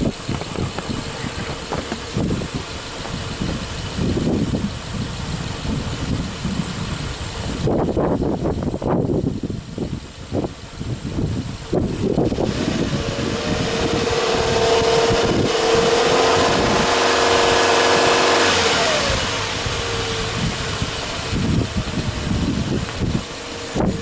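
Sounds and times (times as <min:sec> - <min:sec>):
car engine revving: 0:11.8 - 0:24.0.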